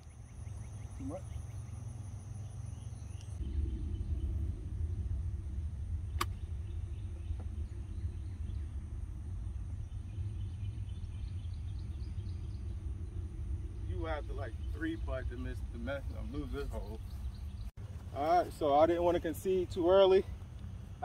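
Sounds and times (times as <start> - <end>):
faint bird chirps: 0.0 - 4.4
wind rumble on microphone: 0.0 - 21.0
sharp click: 6.2 - 6.4.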